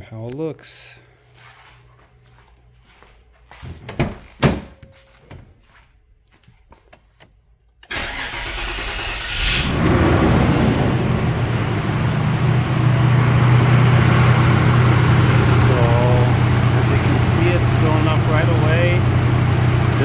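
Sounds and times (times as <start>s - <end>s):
car engine starting and idling: 7.8s - 20.0s.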